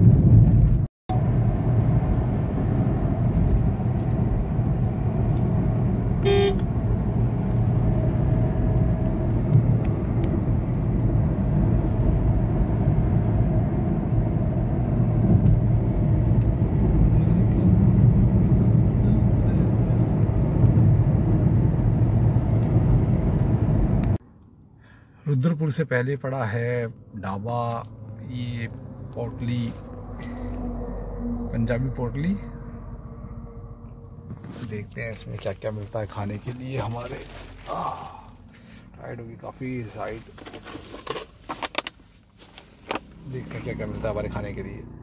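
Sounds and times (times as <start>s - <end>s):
car cabin road and engine noise: 0.0s - 45.0s
vehicle horn toot: 6.2s - 6.9s.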